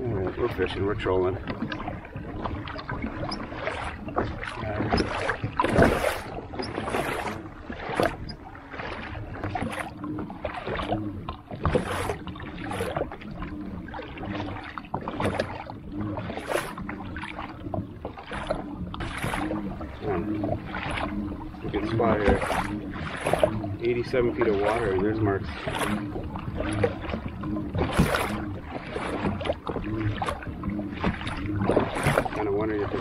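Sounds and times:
water splashing against kayak hull: 0.0s - 33.0s
low steady drone: 7.3s - 33.0s.

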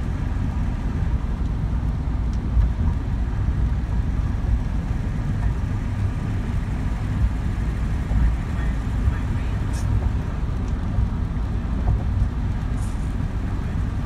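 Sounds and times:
car road and engine rumble: 0.0s - 14.0s.

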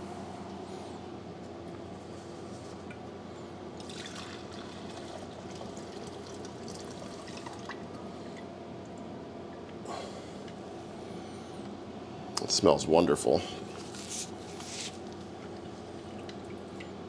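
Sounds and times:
faint steady hum: 0.0s - 17.0s
fuel pouring into glass cup: 3.8s - 7.8s.

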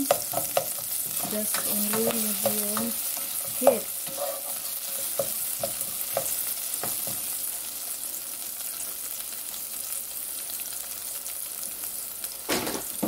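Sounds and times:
spatula knocking against pan: 0.0s - 3.9s, 5.0s - 7.3s
onion sizzling in oil: 0.0s - 13.0s.

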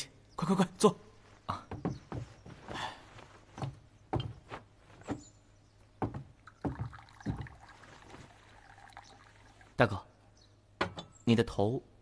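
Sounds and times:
footsteps on wooden floor: 1.2s - 5.4s, 6.0s - 7.6s.

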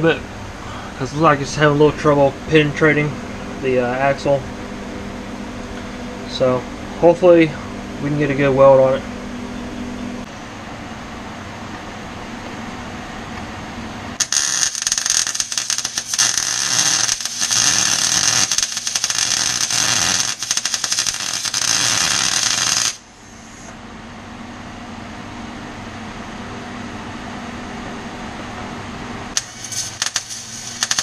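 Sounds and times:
steady hum: 0.0s - 31.0s
welding arc crackling: 14.2s - 23.7s, 29.4s - 31.0s.

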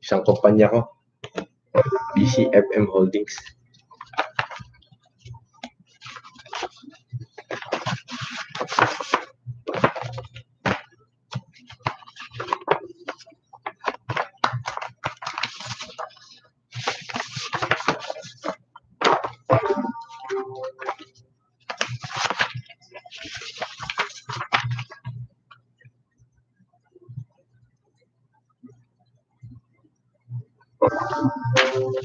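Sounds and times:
paper rustling and shuffling: 3.3s - 4.8s, 5.6s - 25.2s, 31.6s - 32.0s.

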